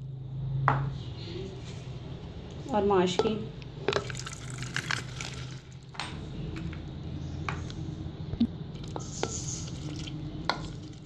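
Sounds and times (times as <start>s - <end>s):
spoon scraping a plate: 9.0s - 10.8s.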